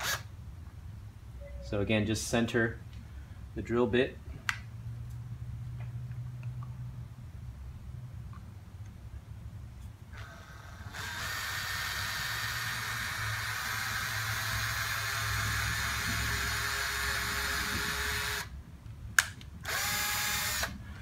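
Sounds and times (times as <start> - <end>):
electric drill running: 0.0 - 0.3, 10.1 - 18.5, 19.6 - 20.8.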